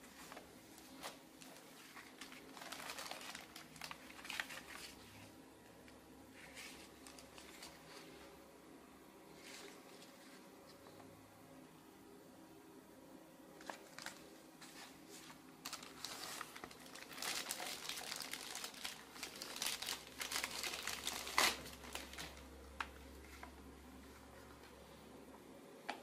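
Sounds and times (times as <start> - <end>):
plastic bag crinkling: 0.2 - 5.2, 6.4 - 8.0, 13.6 - 22.6.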